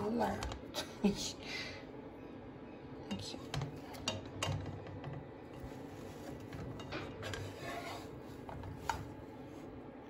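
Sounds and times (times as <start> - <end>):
spatula scraping frying pan: 5.5 - 9.2.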